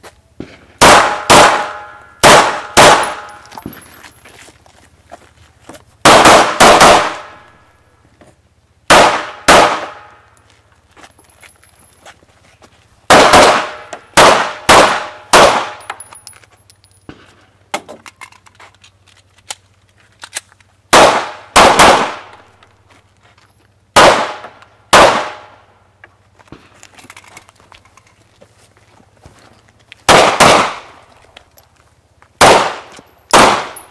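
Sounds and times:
handgun shots echoing: 0.8s - 3.7s, 8.9s - 10.2s, 13.1s - 16.1s, 20.9s - 22.5s, 30.1s - 31.0s, 32.4s - 33.9s.

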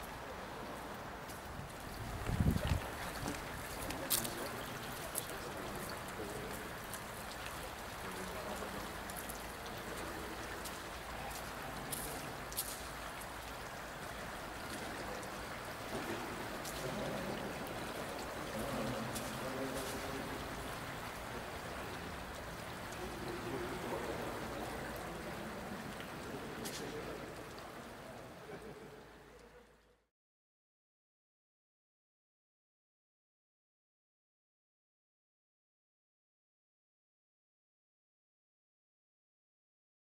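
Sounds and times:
water rushing in a tunnel: 0.0s - 30.0s.

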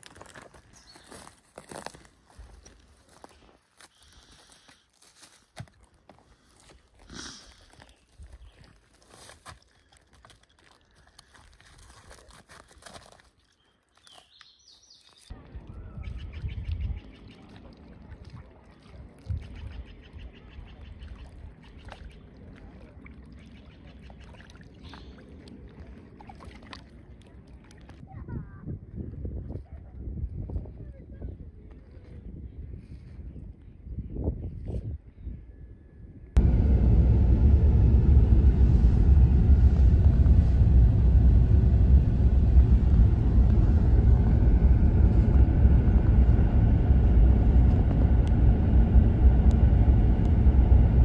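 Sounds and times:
bird chirp: 0.8s - 1.3s, 13.6s - 17.6s
water lapping around kayak: 3.0s - 28.2s
wind rumbling on microphone: 15.3s - 24.2s, 27.6s - 51.0s.

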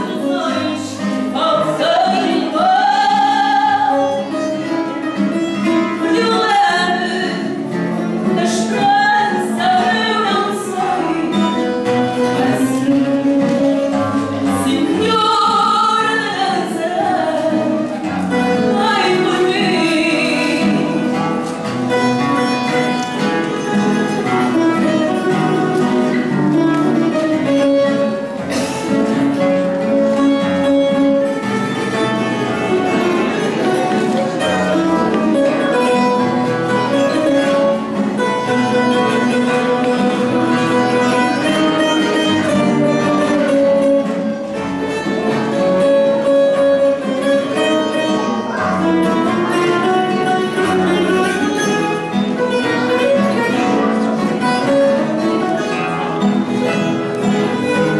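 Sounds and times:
woman singing: 0.0s - 4.5s, 6.0s - 13.6s, 14.4s - 17.9s, 18.5s - 21.1s
guitars playing: 0.0s - 57.9s.

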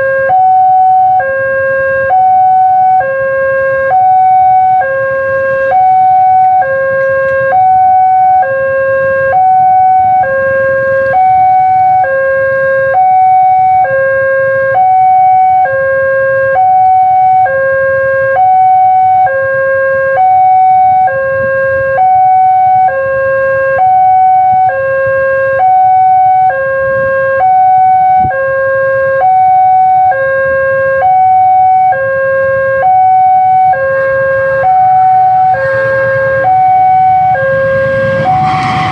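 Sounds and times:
motorcycle engines rumbling: 0.0s - 14.9s, 30.0s - 38.9s
two-tone crossing alarm: 0.0s - 38.9s.

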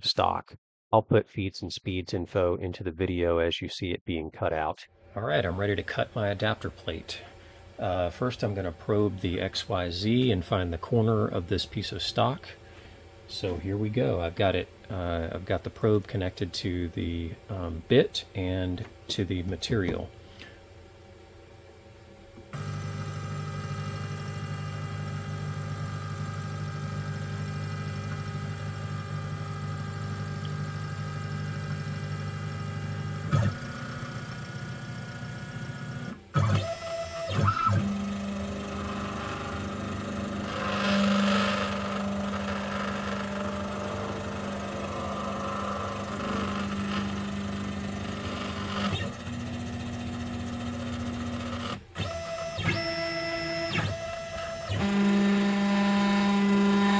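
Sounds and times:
stepper motors whining: 22.5s - 27.1s, 35.5s - 56.9s.

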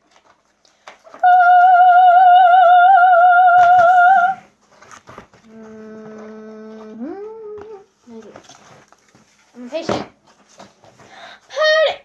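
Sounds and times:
person singing high note with vibrato: 1.2s - 4.5s.

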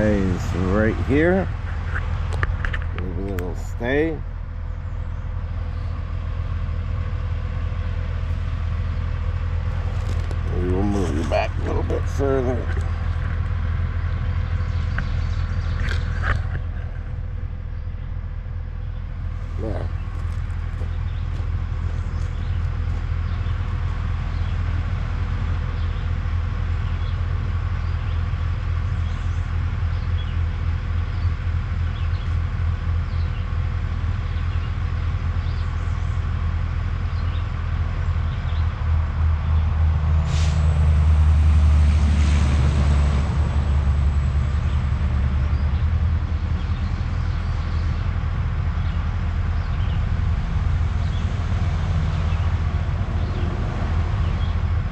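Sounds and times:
heavy diesel truck engine: 0.0s - 54.9s
sharp air hiss: 40.2s - 40.7s.

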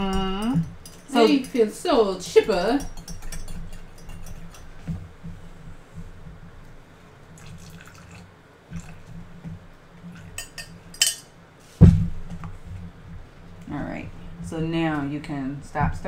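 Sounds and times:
liquid pouring from jug: 7.4s - 9.2s.

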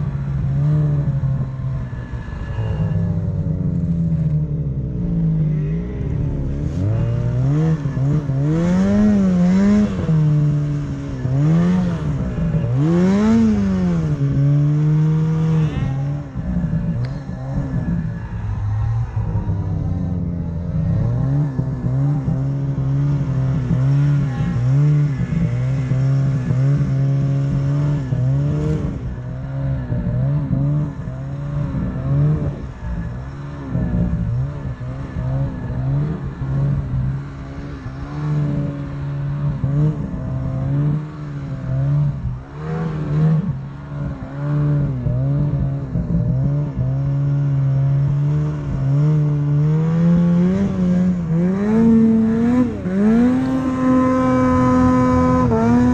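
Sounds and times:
snowmobile engine revving: 0.0s - 55.9s.

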